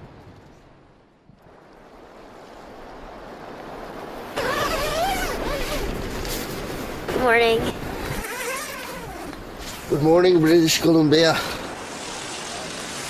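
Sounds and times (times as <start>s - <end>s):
wind: 0.0s - 13.0s
rushing water: 0.8s - 13.0s.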